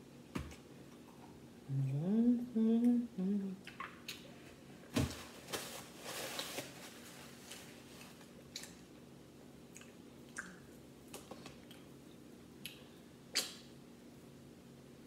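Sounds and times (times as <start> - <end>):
woman humming: 1.6 - 3.6.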